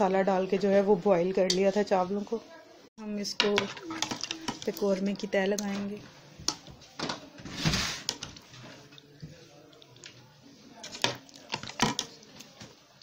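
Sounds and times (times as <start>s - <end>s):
metal spoon scraping metal pot: 3.4s - 5.2s.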